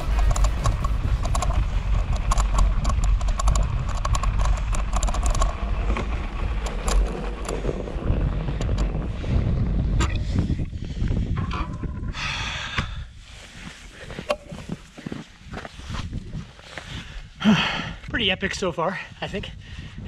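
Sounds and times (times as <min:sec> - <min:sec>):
bike parts rattling and clicking: 0:00.0 - 0:12.2
bike tyres crunching snow: 0:00.0 - 0:19.0
wind on microphone: 0:00.0 - 0:20.0.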